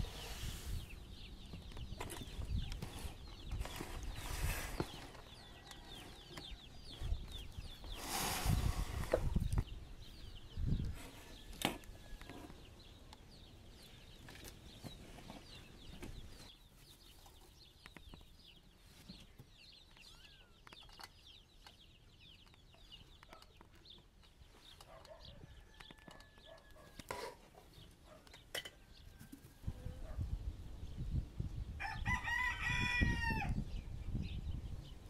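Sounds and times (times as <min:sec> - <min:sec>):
soft low bird calls: 0:00.0 - 0:35.0
high bird chirps: 0:15.5 - 0:26.6.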